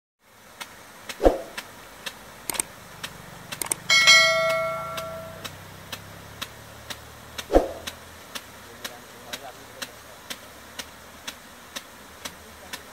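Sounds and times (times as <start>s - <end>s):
rain gun ticking: 0.4s - 12.9s
loud metallic ring: 3.9s - 5.4s.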